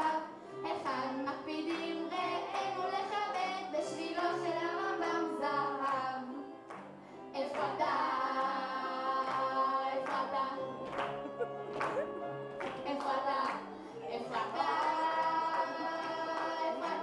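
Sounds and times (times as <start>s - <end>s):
children singing: 0.0s - 6.5s, 7.4s - 17.0s
piano accompaniment: 0.0s - 17.0s
hand claps: 6.7s - 6.9s, 7.5s - 7.8s, 9.2s - 10.2s, 10.8s - 13.7s.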